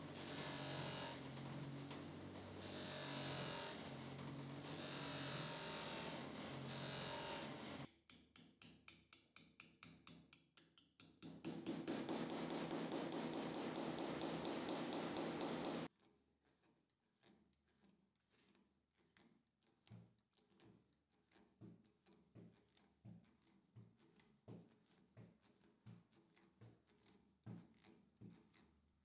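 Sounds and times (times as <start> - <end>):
bench polisher humming: 0.0 - 7.9, 11.8 - 15.9
rapid sharp clicks: 11.8 - 15.9.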